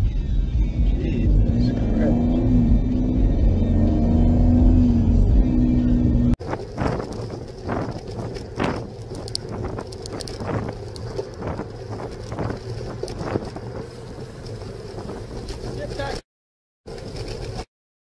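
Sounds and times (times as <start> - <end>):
wind rushing over microphone: 6.0 - 16.2
bike knocks and rattles: 6.4 - 13.7.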